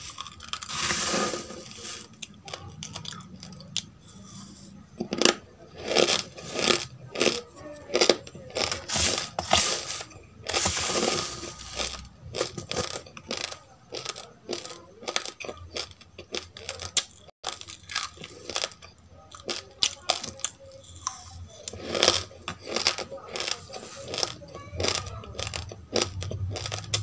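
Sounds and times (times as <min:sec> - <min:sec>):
spoon rustling through grains: 0:00.0 - 0:04.8, 0:05.8 - 0:15.3
crunching rice grains: 0:00.0 - 0:27.0
soft chewing: 0:00.0 - 0:27.0.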